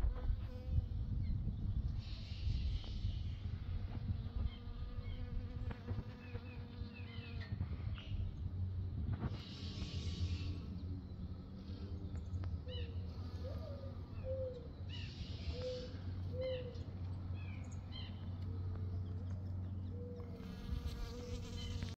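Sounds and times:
honeybee buzzing in flight: 0.0 - 11.9, 12.7 - 14.7, 20.2 - 22.0.

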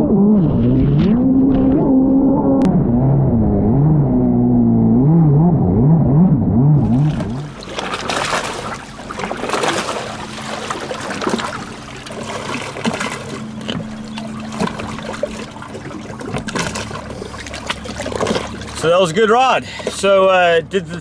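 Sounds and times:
water sloshing and splashing: 6.8 - 21.0.

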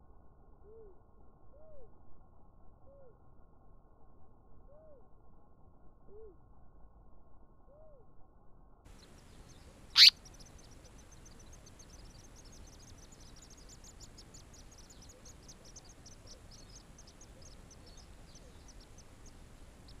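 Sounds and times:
nestlings begging with thin high cheeps: 9.0 - 20.0.

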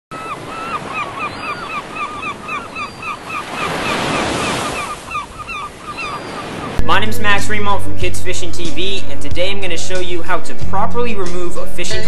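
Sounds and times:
bird chirping rapidly: 0.2 - 6.8
surf washing on a beach: 3.4 - 5.1.

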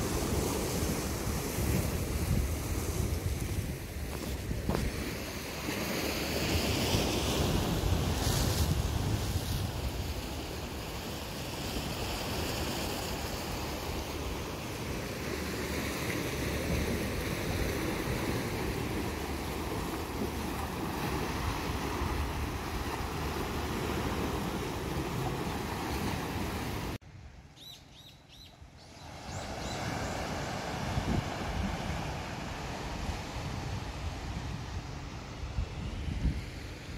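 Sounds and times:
wind buffeting microphone: 0.0 - 5.3
waves washing over rocks: 0.0 - 27.0.

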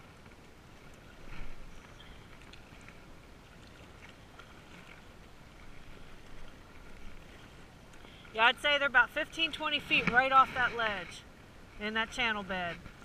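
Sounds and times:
faint ticks and splashes: 0.0 - 13.0
waves lapping against rocks: 0.0 - 13.0.

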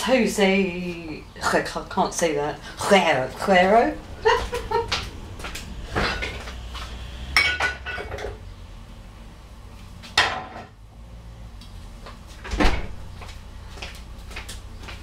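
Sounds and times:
low steady hum: 0.0 - 14.2.

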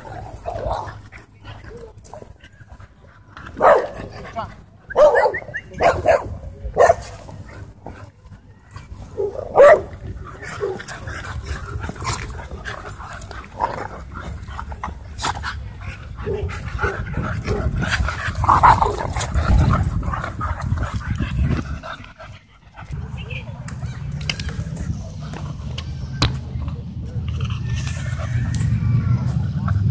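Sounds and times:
dogs barking: 3.5 - 4.1, 4.9 - 7.2, 9.1 - 15.0, 16.0 - 21.2
dogs scuffling and yipping: 6.8 - 29.9
low rumbling noise: 22.9 - 29.9.

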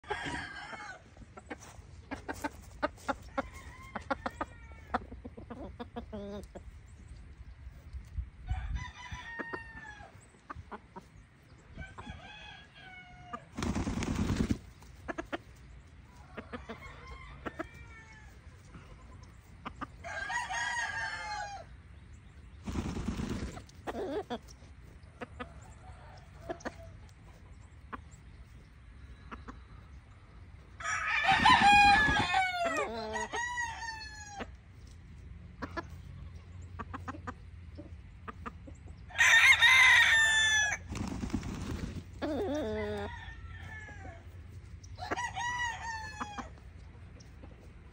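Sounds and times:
roosters crowing: 0.0 - 6.5, 8.4 - 10.5, 11.6 - 21.9, 22.6 - 27.4, 30.2 - 34.6, 39.0 - 46.8
chicken clucking: 0.0 - 8.1, 9.3 - 13.5, 14.3 - 21.7, 23.0 - 39.2, 41.6 - 47.9.

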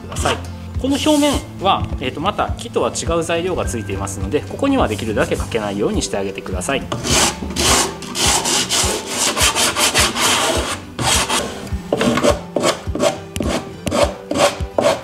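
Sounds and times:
sandpaper rasping on wood: 0.2 - 1.4, 6.9 - 15.0.

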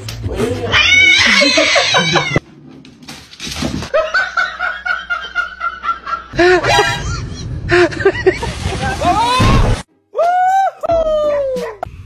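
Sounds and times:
person laughing: 1.2 - 2.4, 4.1 - 9.0.

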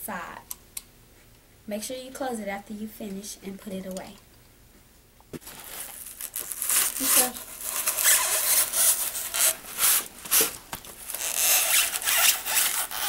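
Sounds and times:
blade scraping foam board: 5.4 - 13.0.

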